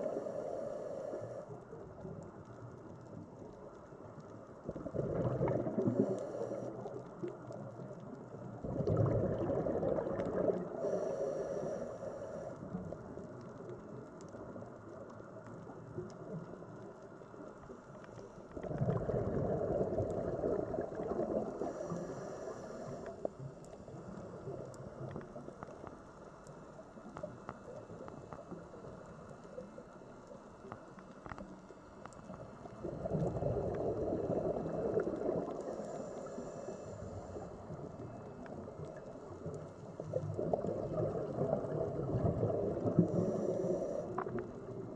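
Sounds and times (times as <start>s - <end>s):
underwater water noise: 0.0s - 44.9s
exhaled bubbles gurgling: 4.3s - 17.0s, 18.5s - 25.8s, 32.2s - 44.9s.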